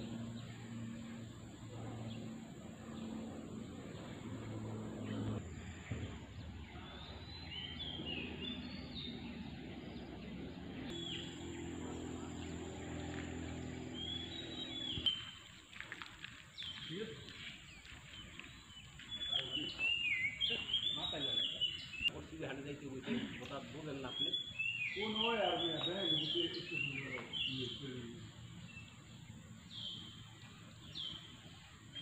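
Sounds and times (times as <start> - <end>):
steady low hum: 0.0 - 16.5
birds chirping: 0.0 - 32.0.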